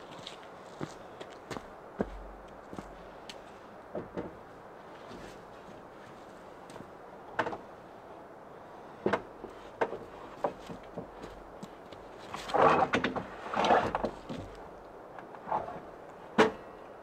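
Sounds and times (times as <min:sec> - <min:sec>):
knocks and clunks at workbench: 0:03.9 - 0:04.4.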